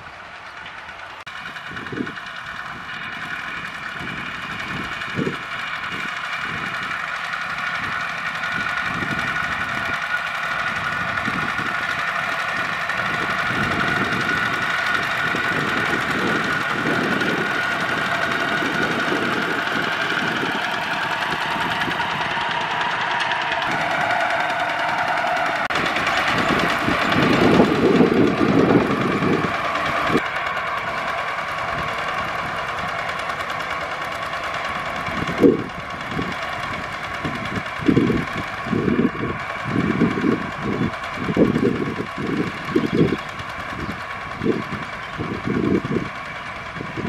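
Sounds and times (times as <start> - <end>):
diesel tractor engines droning: 0.0 - 47.0.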